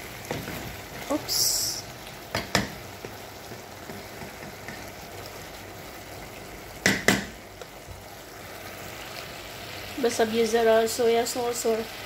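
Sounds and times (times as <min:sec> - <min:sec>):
chicken sizzling in sauce: 0:00.0 - 0:12.0
wooden spoon knocking pot: 0:06.8 - 0:07.4.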